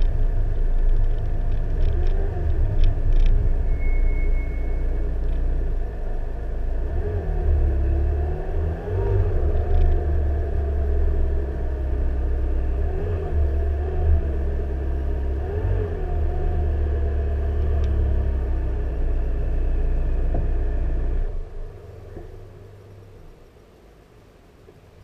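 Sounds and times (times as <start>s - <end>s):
car engine running at low revs: 0.0s - 25.0s.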